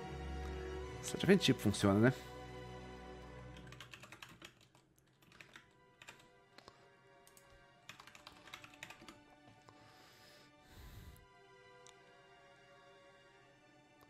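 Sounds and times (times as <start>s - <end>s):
faint orchestral music: 0.0s - 14.0s
typing on computer keyboard: 3.5s - 6.3s, 7.3s - 9.2s.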